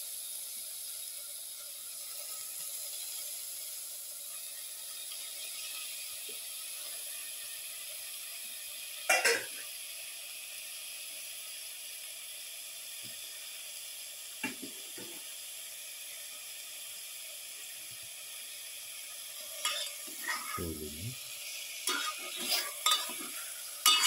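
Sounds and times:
fish sizzling in hot oil: 0.0s - 24.0s
metal spatula clattering on pot: 19.6s - 20.6s, 21.9s - 24.0s.

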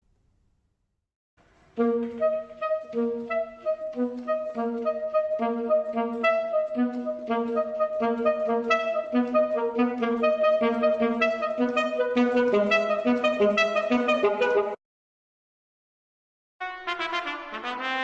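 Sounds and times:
wind instrument lively melody: 1.8s - 14.8s, 16.6s - 18.0s.

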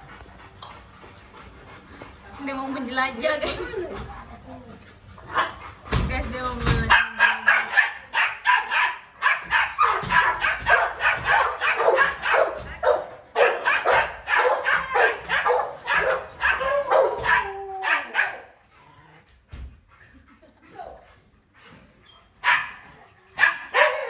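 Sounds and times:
dog barking rapidly: 6.8s - 17.4s, 22.4s - 22.8s
dog whining: 14.4s - 19.0s.

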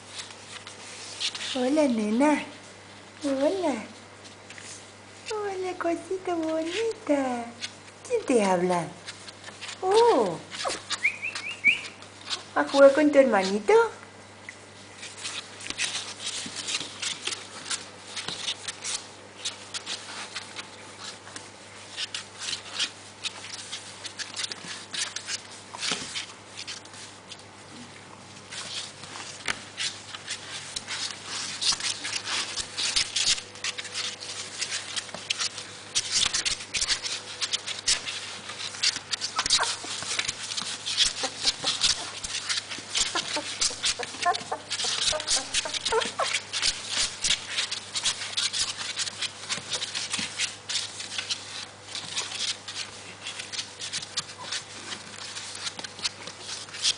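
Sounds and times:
puppies squeaking and whimpering: 9.5s - 12.6s, 29.8s - 56.9s.

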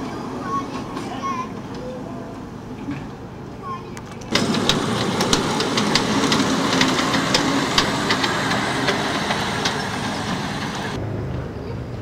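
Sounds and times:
miniature train locomotive running: 4.0s - 11.0s
wheels clicking over track: 4.0s - 11.0s.

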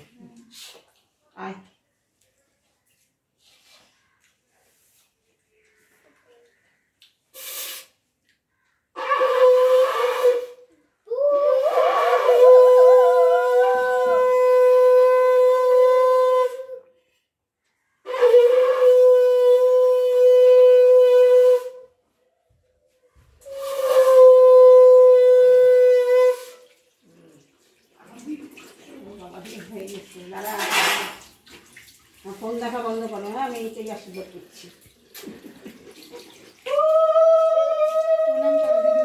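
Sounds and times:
conch shell blasts: 9.0s - 10.7s, 23.5s - 26.6s.

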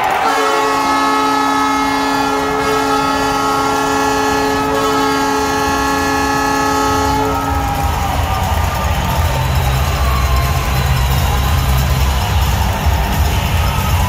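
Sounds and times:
goal horn blast: 0.0s - 8.6s.

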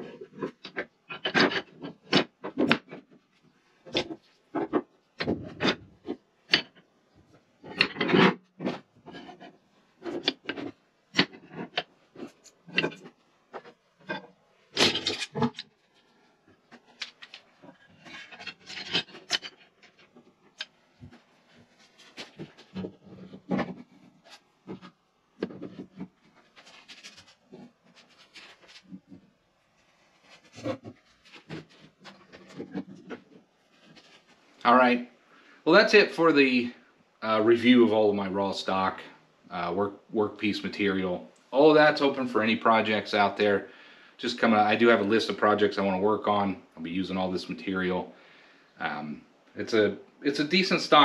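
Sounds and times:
wood rubbing: 0.0s - 34.7s
rods scraping: 3.8s - 34.6s.

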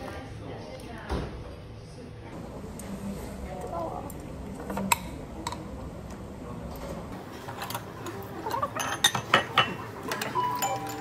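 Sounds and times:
utensils clinking on ceramic bowl: 7.5s - 11.0s.

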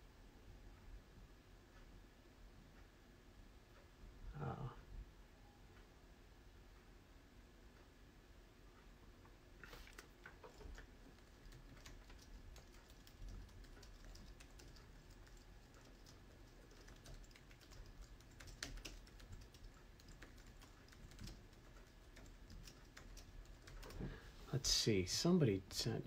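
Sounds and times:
keyboard typing: 9.6s - 24.0s.

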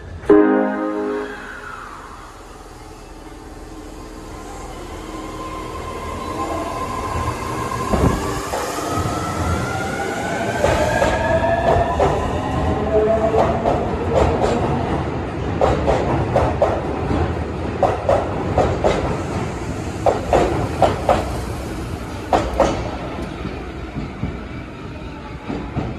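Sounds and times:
train rumble: 1.4s - 25.9s
train wheels clacking over rail joint: 17.8s - 19.3s, 20.0s - 21.4s, 22.3s - 24.4s.

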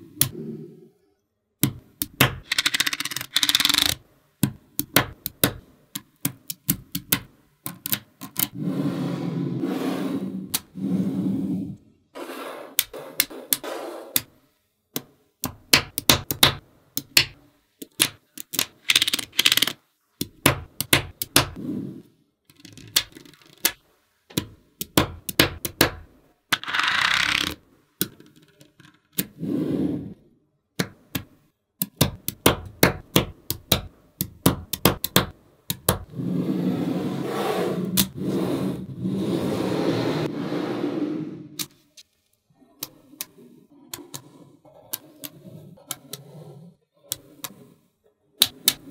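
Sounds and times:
magnetic balls clicking together: 1.6s - 8.6s, 14.9s - 21.6s, 22.5s - 29.3s, 30.8s - 36.1s
balls rattling across a surface: 2.1s - 4.0s, 17.8s - 19.8s, 22.5s - 23.8s, 26.5s - 29.3s.

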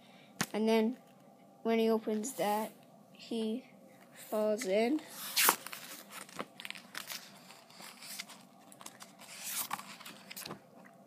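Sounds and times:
book pages flipping: 4.4s - 10.9s.

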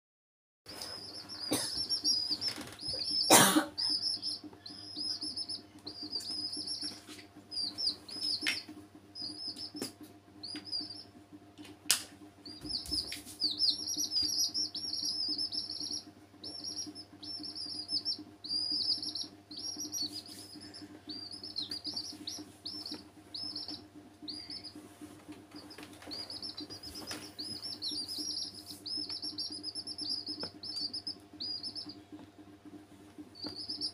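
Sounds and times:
chicks peeping: 0.7s - 33.9s
steady low hum: 0.7s - 33.9s.

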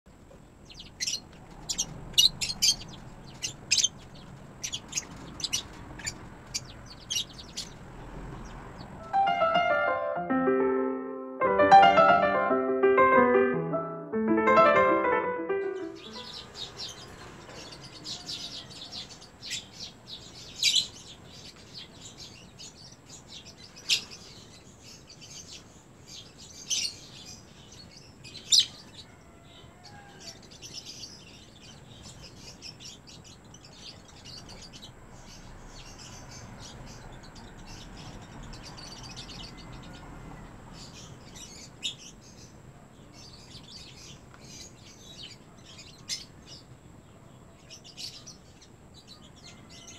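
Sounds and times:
lovebirds chirping: 0.5s - 29.2s
sharp bird calls: 0.7s - 9.2s.

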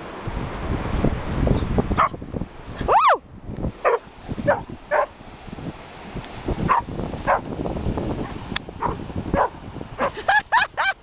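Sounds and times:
waves: 0.0s - 11.0s
wind: 0.0s - 11.0s
dog barking: 3.8s - 5.1s, 6.7s - 7.4s, 8.8s - 10.2s.

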